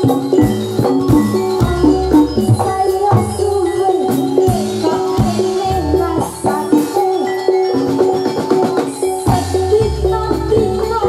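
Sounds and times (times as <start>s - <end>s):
drum strokes: 0.0s - 7.1s
struck metallophones ringing: 0.0s - 11.0s.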